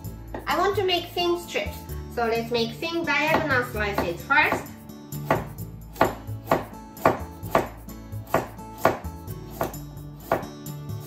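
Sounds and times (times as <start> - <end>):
knife chopping carrot on board: 3.3 - 10.7.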